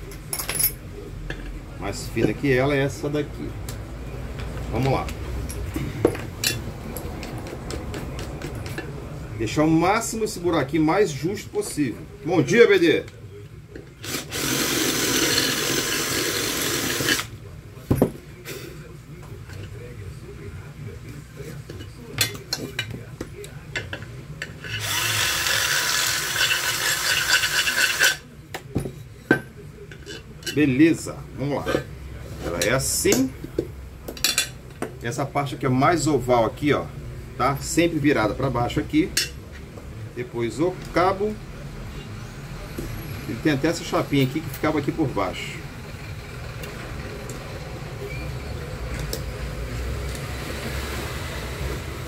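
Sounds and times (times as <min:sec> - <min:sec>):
cordless drill running: 0:14.0 - 0:17.3, 0:24.7 - 0:28.1.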